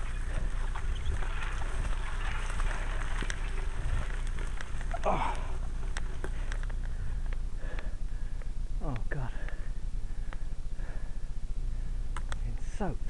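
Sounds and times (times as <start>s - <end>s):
grass rustling against bike: 0.0s - 12.3s
person grunting: 5.0s - 5.5s.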